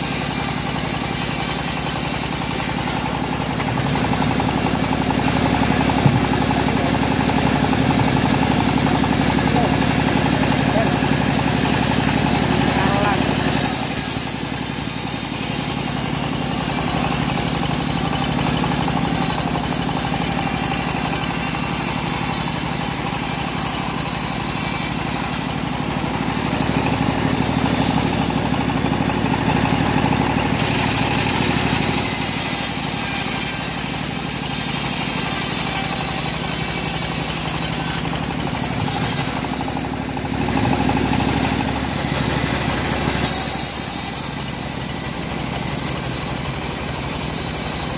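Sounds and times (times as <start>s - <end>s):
bandsaw mill sawing log: 0.0s - 47.9s.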